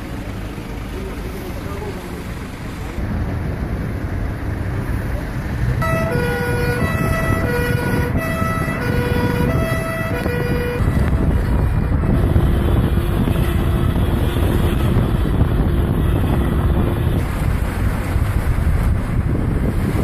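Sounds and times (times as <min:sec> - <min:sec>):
car road noise: 0:00.0 - 0:20.0
wind buffeting: 0:02.4 - 0:20.0
two-tone siren: 0:05.8 - 0:15.1.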